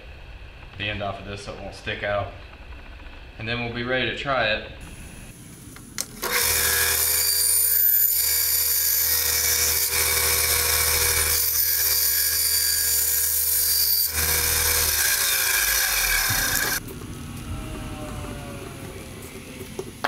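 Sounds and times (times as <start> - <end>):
bandsaw cutting plastic: 6.0 - 16.8.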